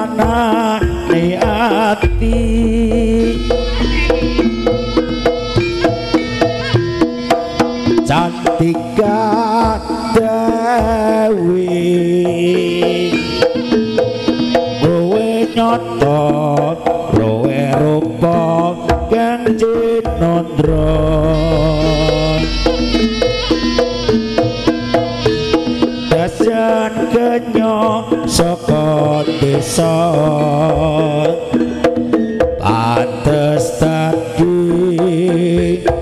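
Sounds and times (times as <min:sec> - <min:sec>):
hand drums beating: 0:00.0 - 0:36.0
sustained gamelan tones: 0:00.8 - 0:08.2, 0:20.6 - 0:26.3
deep bass tone: 0:02.0 - 0:07.1, 0:20.6 - 0:25.4
wavering melody line: 0:02.0 - 0:07.9, 0:20.6 - 0:25.7.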